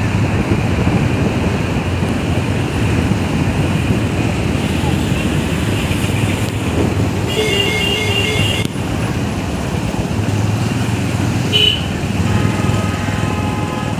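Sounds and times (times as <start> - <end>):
engine and road rumble: 0.0 - 13.9
car horn beeping: 7.2 - 8.8, 11.5 - 13.9.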